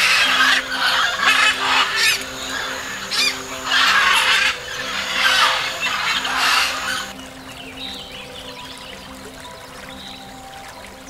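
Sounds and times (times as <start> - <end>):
macaws squawking: 0.0 - 7.1
soft background music: 0.0 - 11.0.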